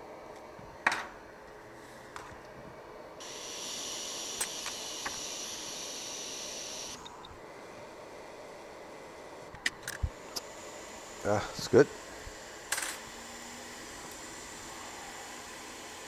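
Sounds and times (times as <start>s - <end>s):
hot air rework station hissing: 3.2s - 8.2s, 10.1s - 16.0s.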